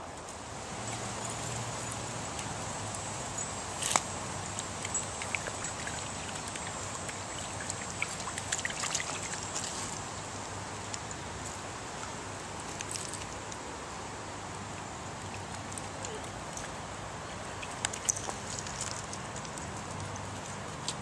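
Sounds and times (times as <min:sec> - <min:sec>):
stream trickling over stones: 0:00.0 - 0:21.0
small water splashes and drips: 0:00.8 - 0:10.2, 0:17.4 - 0:19.6.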